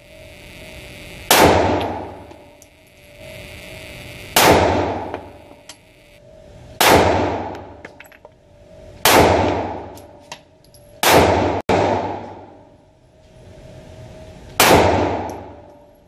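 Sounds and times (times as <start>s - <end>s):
pistol shots echoing indoors: 11.0s - 12.5s.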